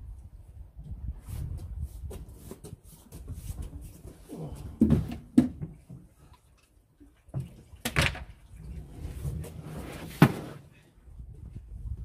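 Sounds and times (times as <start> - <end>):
crate knocks and thumps: 10.0 - 10.6.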